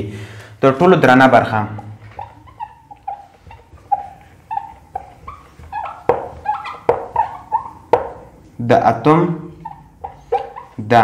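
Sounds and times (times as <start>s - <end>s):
whiteboard marker squeaking: 1.4s - 11.0s
marker tapping on whiteboard: 1.8s - 8.5s, 9.6s - 10.8s.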